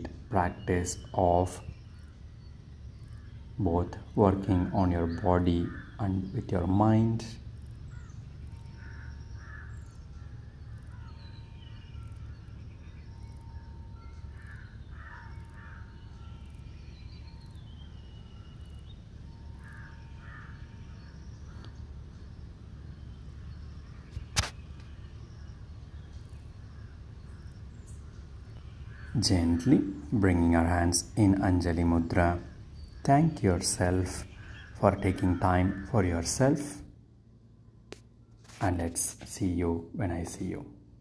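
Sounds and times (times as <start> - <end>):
birds calling: 0.0 - 41.0
steady low rumble: 0.0 - 41.0
crows cawing: 5.1 - 6.0, 7.8 - 11.2, 14.2 - 16.6, 19.4 - 21.9, 26.6 - 29.7, 34.1 - 36.4
sharp click: 24.2 - 24.9.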